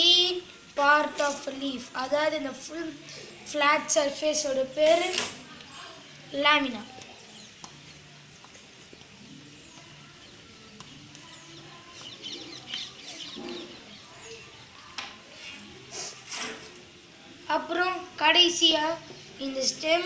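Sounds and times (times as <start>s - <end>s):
chalk scratching on blackboard: 15.4s - 16.7s.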